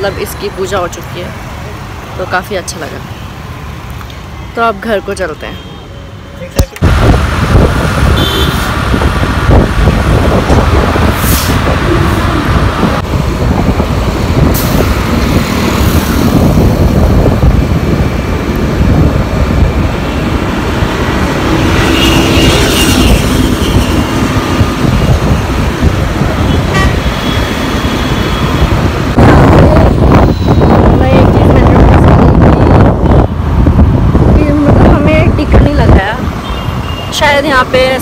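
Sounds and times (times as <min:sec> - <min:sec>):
passing road traffic: 0:00.0 - 0:38.0
wind buffeting microphone: 0:06.7 - 0:36.8
vehicle horn: 0:08.2 - 0:08.7, 0:21.8 - 0:24.0, 0:26.5 - 0:28.6.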